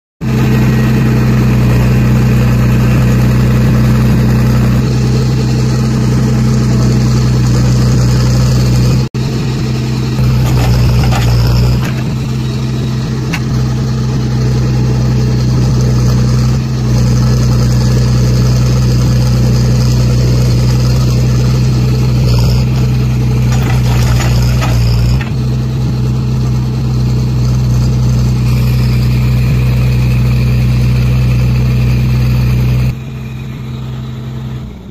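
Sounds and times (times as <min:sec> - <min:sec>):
diesel engine running under load: 0:00.2 - 0:34.9
backhoe digging soil: 0:09.6 - 0:14.6, 0:20.5 - 0:26.2.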